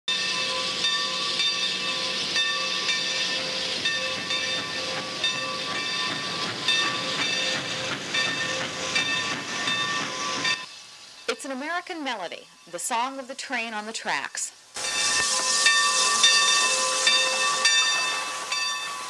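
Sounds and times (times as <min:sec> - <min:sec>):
steam locomotive whistle chord: 0:00.1 - 0:10.7, 0:14.8 - 0:19.0
hissing steam: 0:00.1 - 0:19.0.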